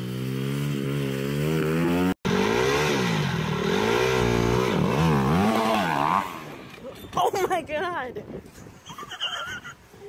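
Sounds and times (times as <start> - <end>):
dirt bike engine revving: 0.0 - 6.8.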